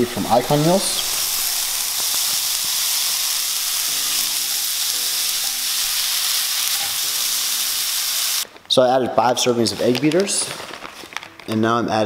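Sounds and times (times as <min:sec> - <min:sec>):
meat and vegetables sizzling in pan: 0:00.0 - 0:08.5
spatula stirring: 0:00.8 - 0:08.1.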